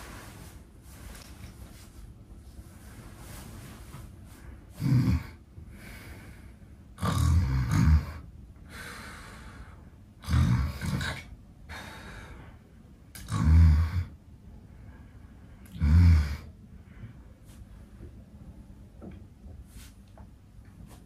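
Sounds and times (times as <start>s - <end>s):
soft breathing: 0.0s - 6.9s, 8.6s - 10.1s, 11.6s - 13.1s, 14.4s - 18.6s
man snoring loudly: 4.8s - 5.4s, 7.0s - 8.2s, 10.2s - 11.2s, 13.2s - 14.1s, 15.8s - 16.5s.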